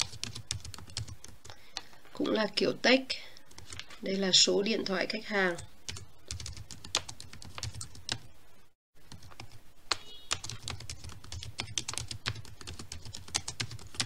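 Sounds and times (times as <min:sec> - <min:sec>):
computer keyboard typing: 0:00.0 - 0:01.9, 0:03.5 - 0:03.9, 0:05.5 - 0:08.3, 0:09.1 - 0:14.0.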